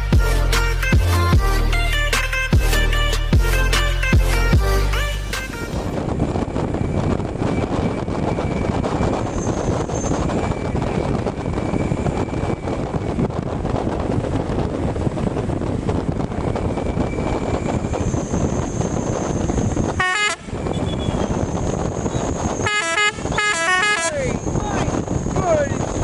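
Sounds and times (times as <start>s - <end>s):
wind and road noise: 0.0s - 26.0s
bus horns tooting: 19.6s - 25.6s.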